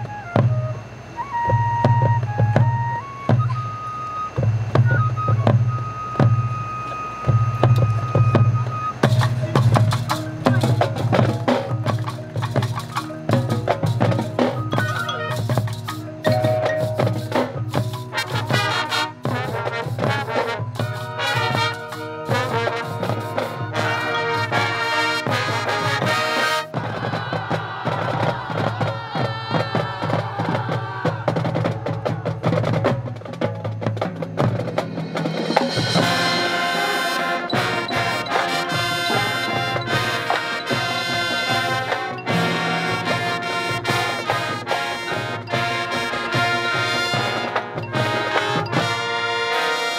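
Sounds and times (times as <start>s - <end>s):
drums and mallet percussion: 0.0s - 49.9s
marching band playing: 0.0s - 49.9s
held brass chords: 13.0s - 27.8s, 35.0s - 49.9s.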